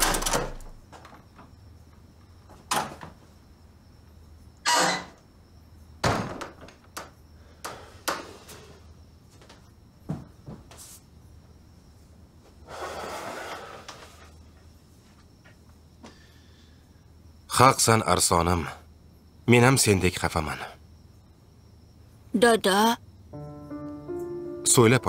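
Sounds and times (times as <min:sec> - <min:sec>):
door opening and closing: 0:00.0 - 0:01.5, 0:02.5 - 0:03.2, 0:04.6 - 0:05.3, 0:06.0 - 0:08.7
footfalls: 0:09.3 - 0:11.0.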